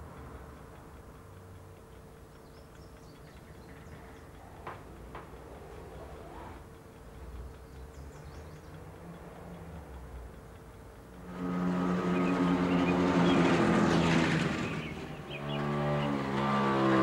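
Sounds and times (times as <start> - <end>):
small motorbike engine: 11.1 - 17.0.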